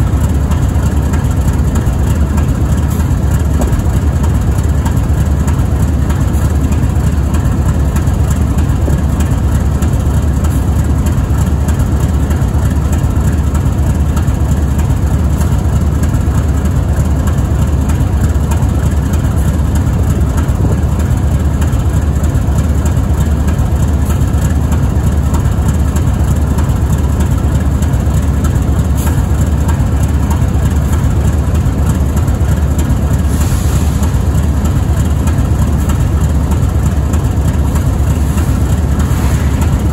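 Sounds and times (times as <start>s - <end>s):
diesel locomotive engine idling: 0.0s - 39.9s.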